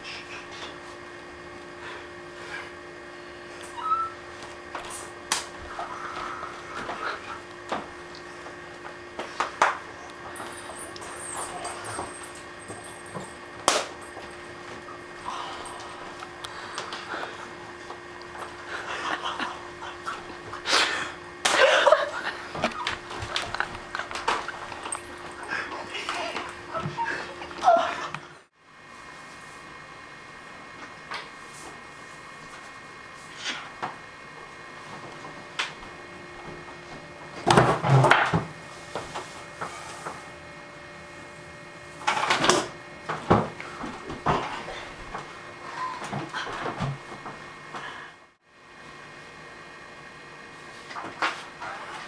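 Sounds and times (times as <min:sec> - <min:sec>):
laughter: 0:18.7 - 0:20.3, 0:21.5 - 0:22.8.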